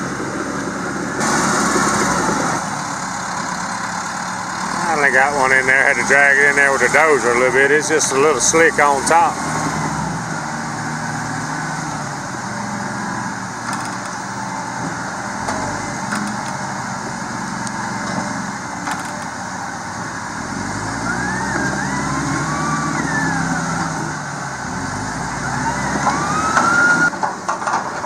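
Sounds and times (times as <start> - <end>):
bulldozer diesel engine: 0.0 - 28.0
wavering high whine: 20.9 - 24.3.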